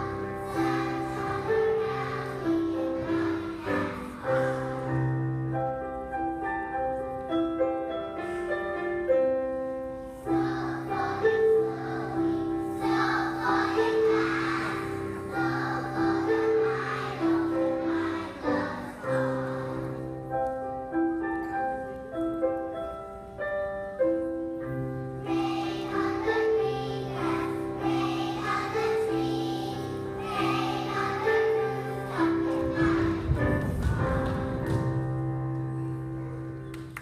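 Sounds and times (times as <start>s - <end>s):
children singing in unison: 0.0s - 5.4s, 10.0s - 20.4s, 25.2s - 34.6s.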